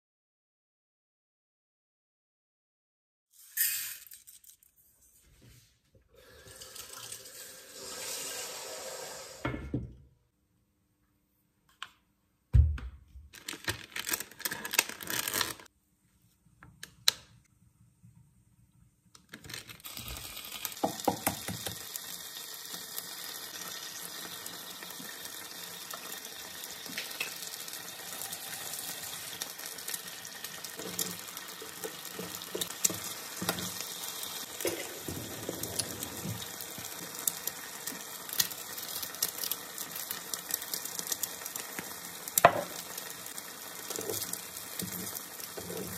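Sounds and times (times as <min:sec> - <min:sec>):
frying sizzle with small pops: 0:19.8 - 0:45.9.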